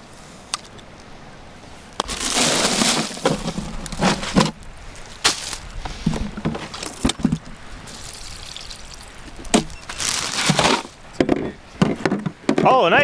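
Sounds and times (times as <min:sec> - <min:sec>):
rushing pouring noise: 0:02.1 - 0:11.0.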